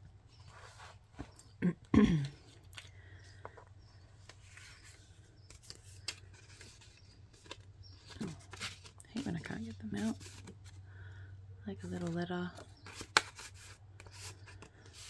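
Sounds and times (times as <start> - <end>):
paper rustling: 3.4 - 10.8.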